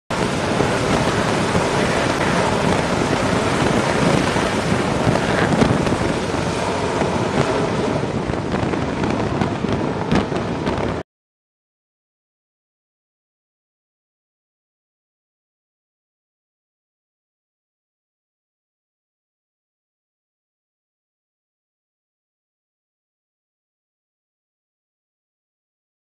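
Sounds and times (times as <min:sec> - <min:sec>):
jet engine roar: 0:00.1 - 0:11.0.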